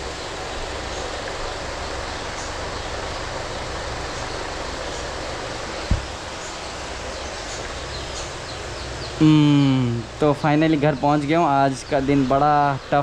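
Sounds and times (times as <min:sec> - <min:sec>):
short low thud: 0:05.9 - 0:06.1.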